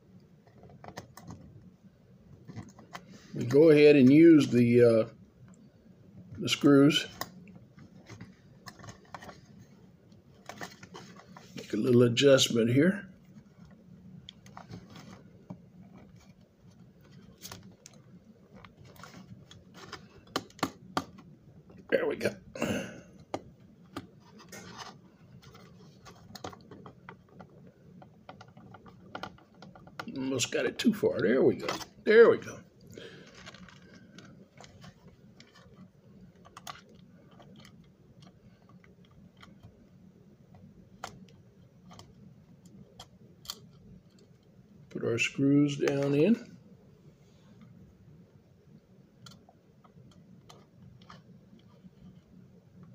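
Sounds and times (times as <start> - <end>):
low steady hum: 0.0 - 52.9.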